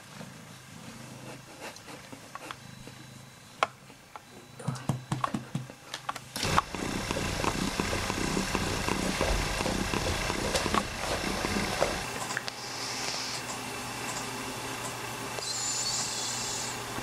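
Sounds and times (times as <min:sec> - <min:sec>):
cat purring: 0:06.4 - 0:12.1.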